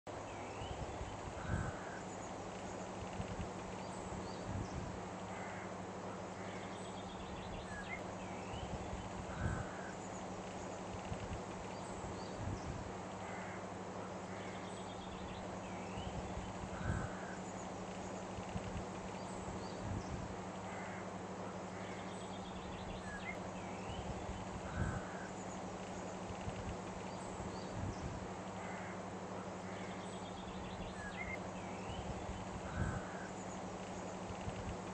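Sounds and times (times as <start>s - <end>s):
short bird calls: 28.6s - 33.4s.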